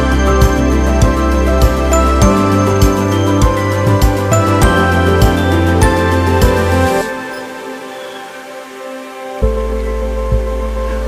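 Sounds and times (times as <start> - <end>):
deep bass with slow beat: 0.0 - 7.0, 9.4 - 11.0
sustained soft music tones: 0.0 - 11.0.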